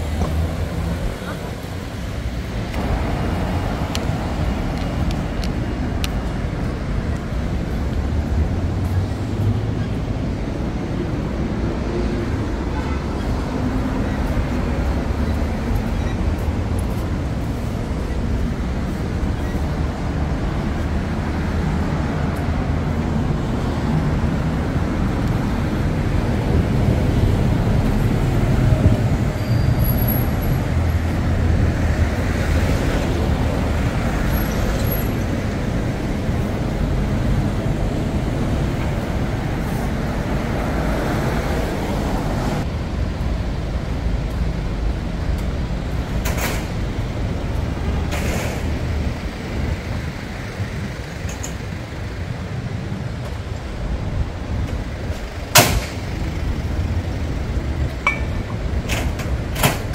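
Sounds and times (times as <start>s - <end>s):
road traffic rumble: 0.0s - 59.9s.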